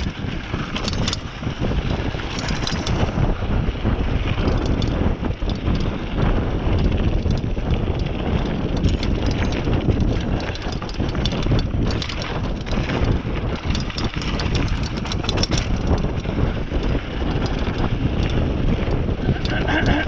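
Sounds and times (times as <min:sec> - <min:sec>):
tyres on dirt and stones: 0:00.0 - 0:03.4, 0:06.7 - 0:20.0
bike clicks and rattles: 0:00.0 - 0:20.0
wind buffeting on microphone: 0:00.0 - 0:20.0.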